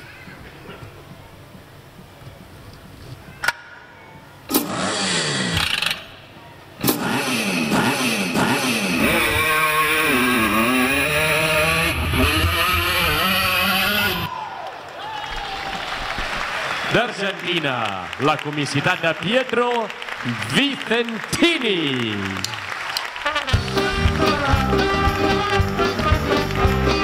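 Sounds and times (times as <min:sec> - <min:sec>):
motorcycle engine revving: 0:04.5 - 0:06.2, 0:06.8 - 0:14.3.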